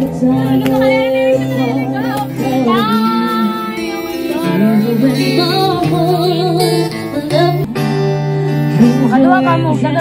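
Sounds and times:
woman singing: 0.0 - 7.8.

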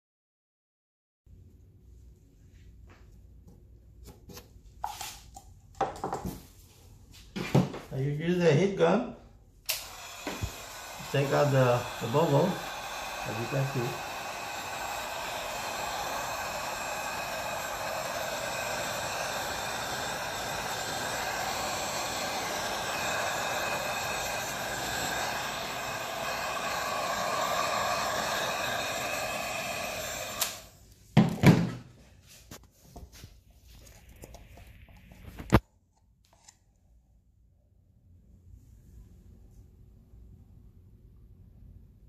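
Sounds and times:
heat gun blowing: 9.7 - 30.8.

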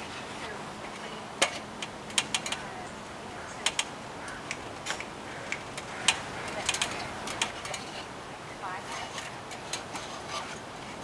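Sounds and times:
sharp clicks and light taps: 0.9 - 2.9, 3.6 - 8.0.

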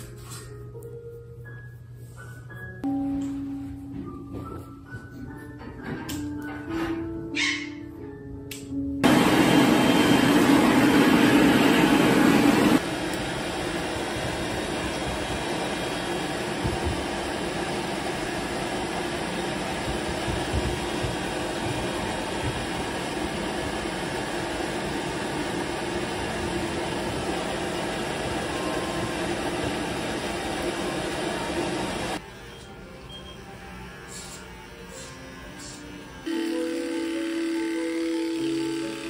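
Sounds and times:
fan air rushing: 9.0 - 32.3.

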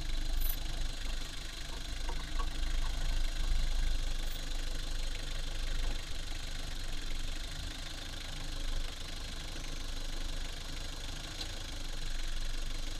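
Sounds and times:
diesel engine idling: 0.0 - 12.9.

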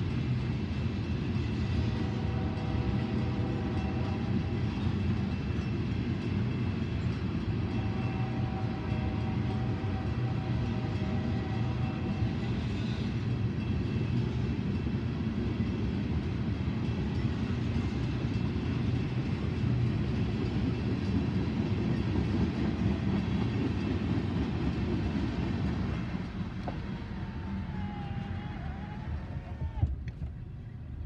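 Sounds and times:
train wheels rumbling on rails: 0.0 - 31.0.

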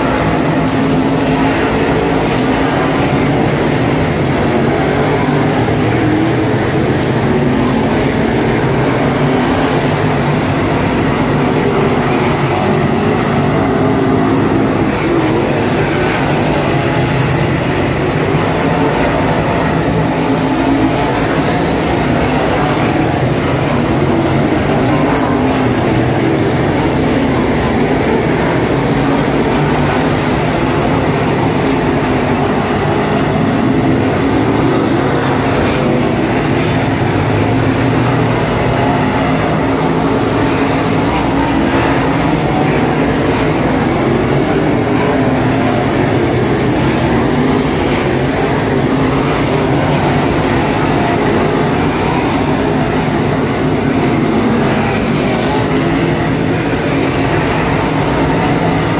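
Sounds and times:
race car engines droning: 0.0 - 58.9.

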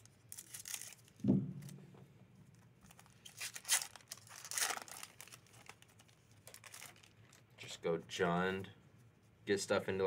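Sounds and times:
foil wrapper crinkling and tearing: 0.0 - 1.2, 2.8 - 7.4
low thump: 1.2 - 2.0.

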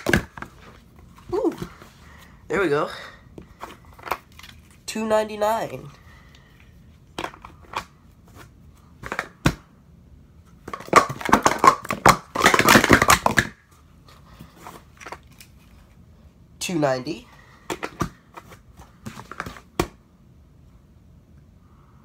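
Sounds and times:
plastic cups clacking: 10.7 - 13.6.

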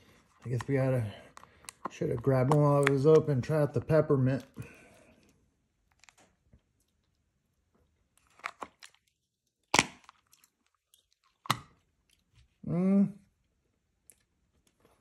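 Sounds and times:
person humming: 12.6 - 13.2.

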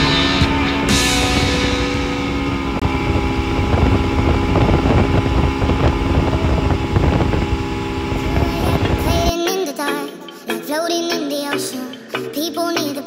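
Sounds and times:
outboard motor running: 0.0 - 9.3
wind rumbling on microphone: 1.3 - 9.3.

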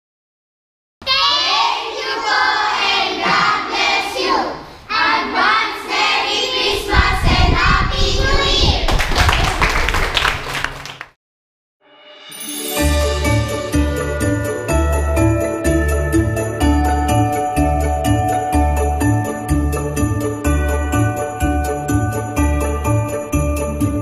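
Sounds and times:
children singing together: 1.0 - 8.7
hand clapping: 8.9 - 11.2.

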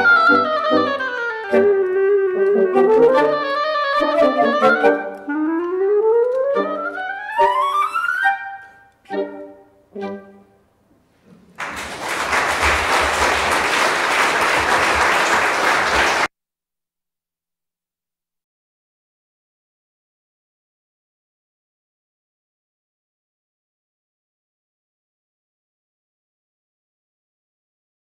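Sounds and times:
wind quintet playing: 0.0 - 10.6
audience applause: 11.5 - 16.3.

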